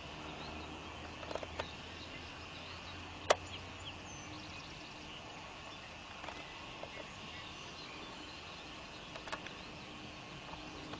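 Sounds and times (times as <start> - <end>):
low hum and hiss: 0.0 - 10.9
light clicks: 9.1 - 9.6.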